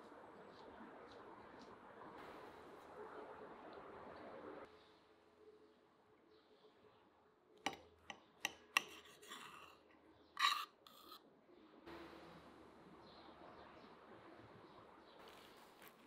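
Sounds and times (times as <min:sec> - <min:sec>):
knife clicking on plate: 0:08.5 - 0:09.7
knife scraping and rasping: 0:08.5 - 0:11.2.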